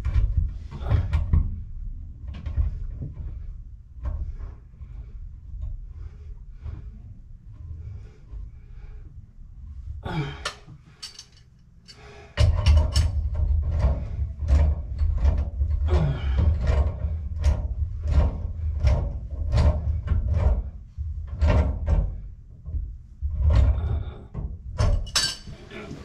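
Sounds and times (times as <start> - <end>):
low uneven rumble: 0.0 - 12.2.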